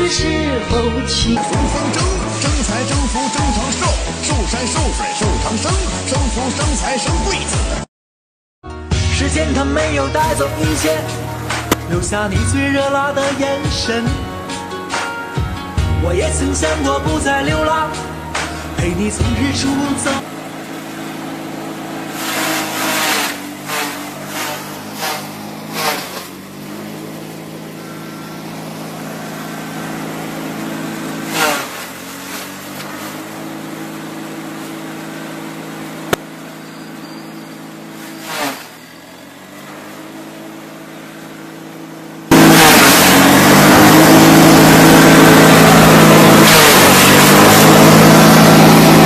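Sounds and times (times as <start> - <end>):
loud harsh machine noise: 1.4 - 7.1, 16.1 - 49.0
chaff cutter humming: 10.2 - 15.0, 16.2 - 49.0
crackling of stalks being chopped: 10.7 - 12.1, 22.1 - 27.2, 31.2 - 33.5, 38.0 - 38.8.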